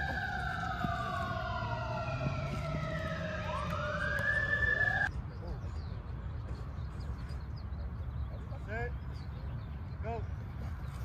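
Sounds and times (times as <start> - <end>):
emergency vehicle siren wailing: 0.0 - 5.1.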